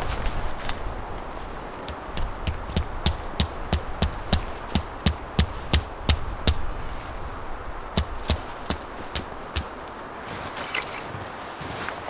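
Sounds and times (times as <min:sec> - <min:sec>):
hammering tent stake: 0:01.9 - 0:06.7, 0:07.9 - 0:09.8.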